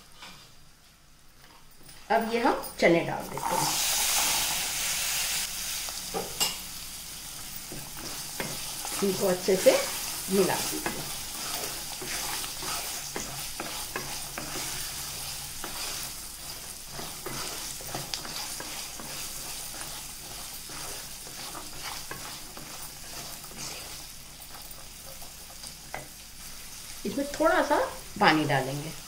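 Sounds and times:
frying hiss: 2.0 - 29.0
spatula scraping pan: 7.7 - 25.4.

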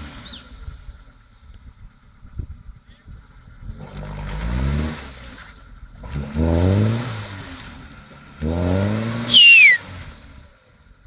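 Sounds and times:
car engine revving: 3.8 - 10.4.

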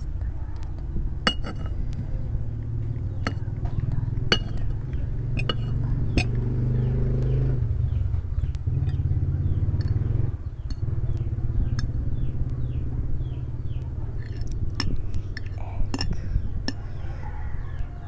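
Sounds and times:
low motor-like rumble: 0.0 - 18.0
glass with ice clinking: 1.2 - 1.7, 4.3 - 4.7, 5.4 - 6.3
fork clinking on glass plate: 1.2 - 1.8, 4.3 - 4.7, 5.4 - 6.3.

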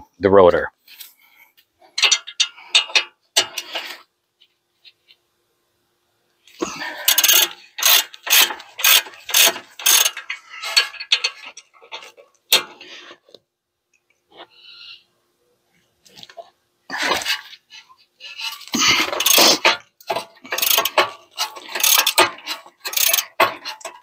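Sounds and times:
ratchet wrench clicking: 7.1 - 11.4, 19.0 - 23.9.

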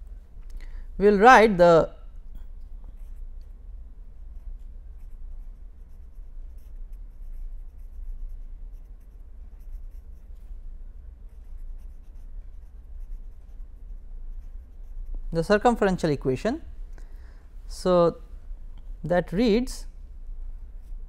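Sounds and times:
steady low hum: 0.0 - 21.0
pen scratching on paper: 4.4 - 10.3, 11.2 - 15.2.

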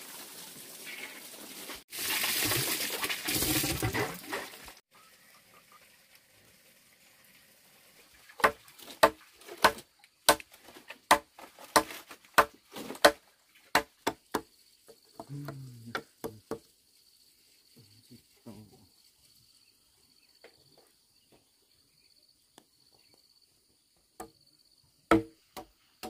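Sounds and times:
machete chopping into log: 8.4 - 10.5, 11.1 - 14.2, 25.1 - 25.3
insect drone: 14.1 - 25.9.

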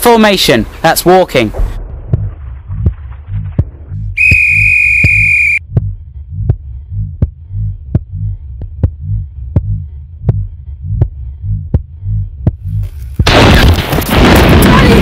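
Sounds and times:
low pulses: 1.6 - 13.0
shrill whistle blast: 4.2 - 5.6.

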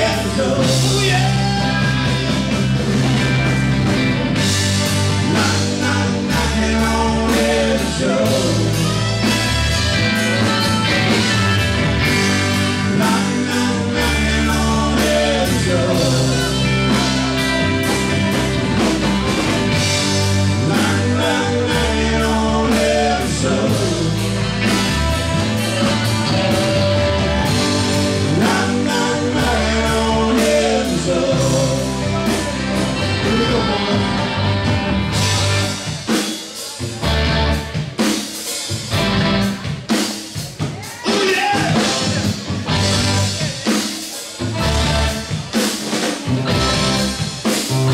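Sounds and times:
bass guitar: 0.0 - 47.9
drum kit: 0.0 - 47.9
electric guitar: 0.0 - 47.9
saxophone: 8.7 - 13.0.

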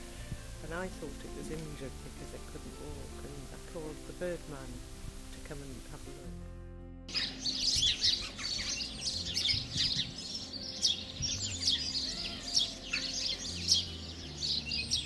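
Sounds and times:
flock of birds chirping: 7.1 - 15.0.

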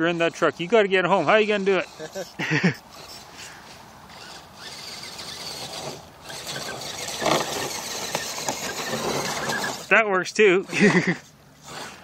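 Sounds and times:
electric motor and gears whining: 1.2 - 12.0
clatter: 4.7 - 9.9.

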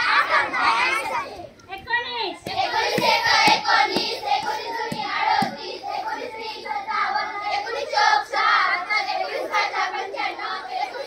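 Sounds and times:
children clapping: 2.5 - 5.6
children singing in unison: 2.5 - 11.0.

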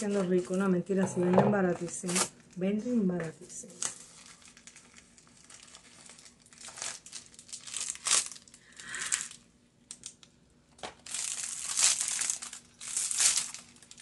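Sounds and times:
packaging crinkling: 3.6 - 14.0.

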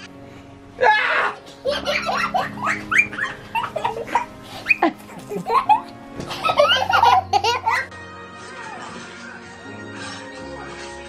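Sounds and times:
background music: 0.0 - 11.0
toddler laughing: 1.4 - 7.9.

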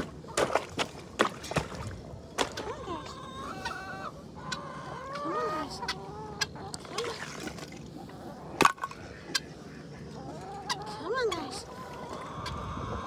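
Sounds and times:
fowl squawking: 2.7 - 6.8.

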